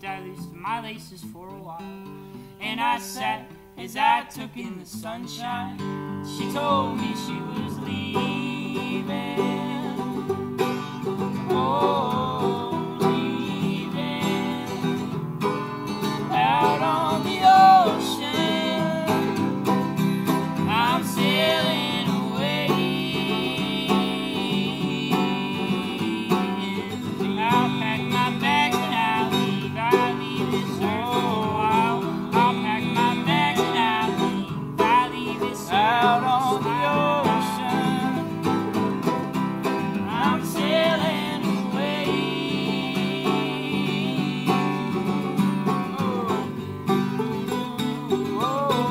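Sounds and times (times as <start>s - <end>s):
acoustic guitar strumming: 0.0s - 48.9s
banjo picking: 5.8s - 48.9s
person singing wavering notes: 6.5s - 15.2s, 16.2s - 38.4s.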